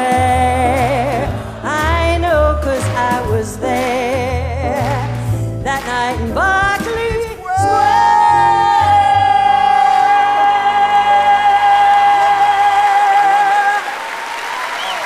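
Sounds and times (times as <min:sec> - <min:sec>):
backing music with bass line: 0:00.0 - 0:11.4.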